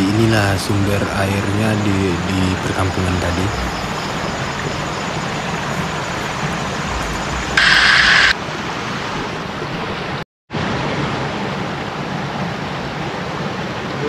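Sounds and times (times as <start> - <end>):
stream rushing over stones: 0.0 - 9.0.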